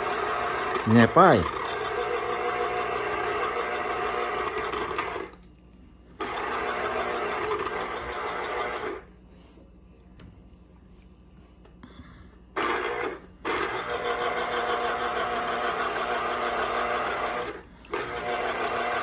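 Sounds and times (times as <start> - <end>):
citrus juicer motor whirring: 0.0 - 5.5, 6.2 - 9.2, 12.5 - 19.0.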